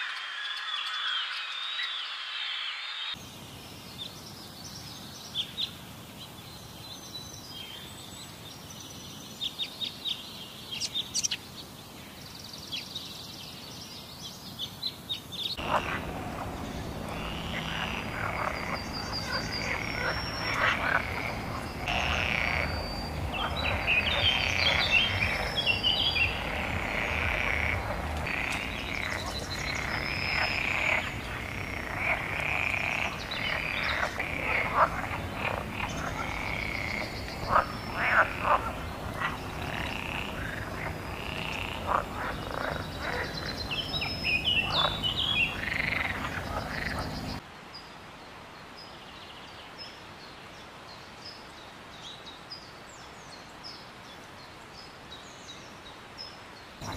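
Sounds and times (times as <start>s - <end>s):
frog chorus: 0.0s - 3.2s, 15.6s - 47.4s.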